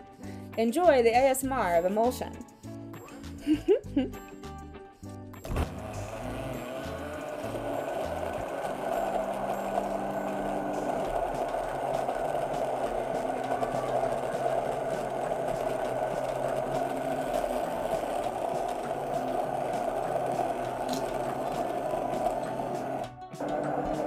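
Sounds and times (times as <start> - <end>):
stick blender running in glass bowl: 5.4 - 24.0.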